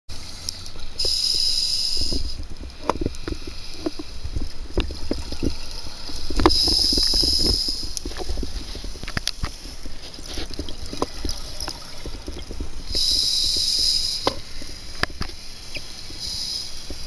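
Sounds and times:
exhaled bubbles gurgling: 0.2 - 17.0
regulator hissing inhalation: 1.0 - 2.4, 5.1 - 8.0, 12.8 - 17.0.

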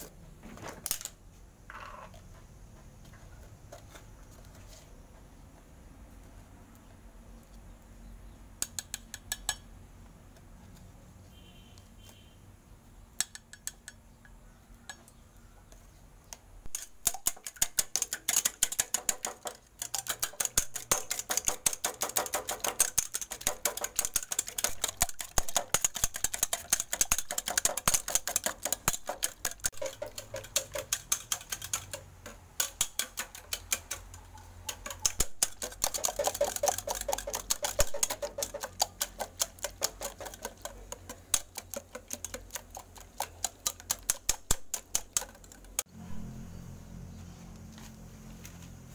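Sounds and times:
wire whisk beating in metal pot: 16.7 - 45.8.

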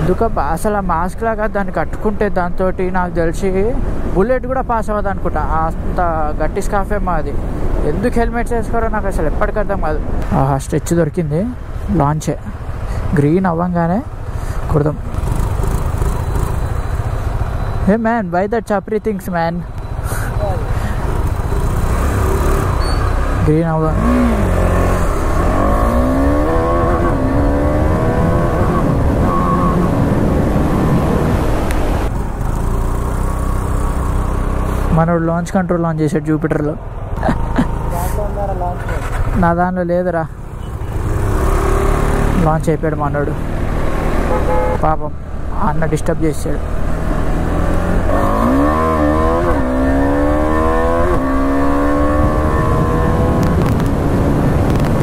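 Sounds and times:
motorcycle engine accelerating: 14.9 - 17.9, 19.9 - 34.9, 37.2 - 39.4, 40.5 - 42.6, 46.6 - 55.0
wind rumble: 19.8 - 32.6, 46.6 - 55.0.

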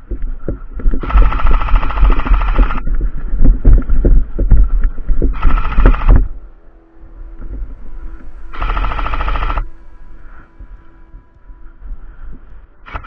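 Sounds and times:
airsoft rifle full-auto bursts: 1.0 - 2.8, 5.4 - 6.2, 8.6 - 9.6.

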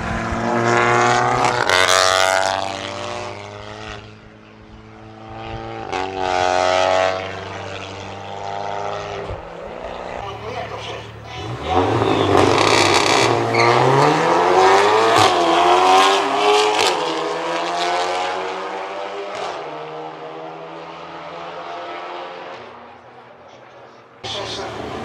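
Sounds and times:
car engines accelerating hard: 0.0 - 25.0
exhaust cracks: 10.4 - 14.1.

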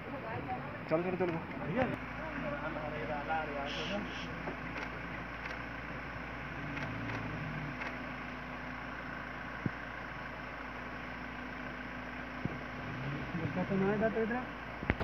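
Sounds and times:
jeep engine idling: 0.0 - 15.0.

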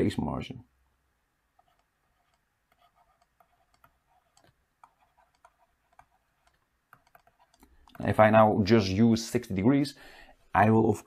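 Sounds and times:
stylus tapping on tablet screen: 1.6 - 8.1.

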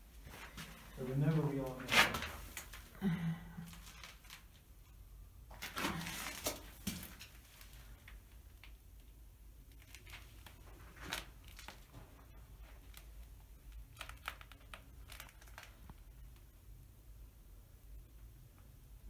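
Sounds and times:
faint rustles and crunches: 0.1 - 3.0, 3.6 - 16.4.

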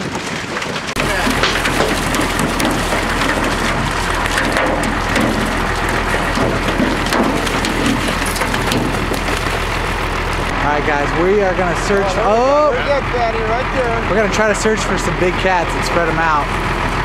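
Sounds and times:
water gushing down a chute: 0.0 - 17.0.

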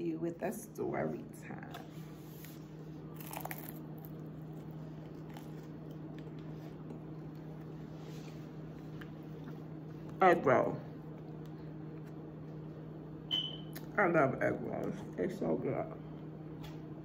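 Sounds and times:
steady low hum: 0.0 - 17.0
quiet chewing: 1.7 - 10.2, 10.9 - 12.8
bite into crisp food: 3.1 - 7.7.

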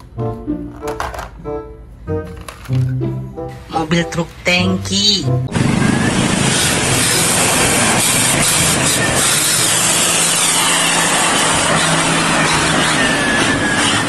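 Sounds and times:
truck diesel engine droning: 5.4 - 14.0.

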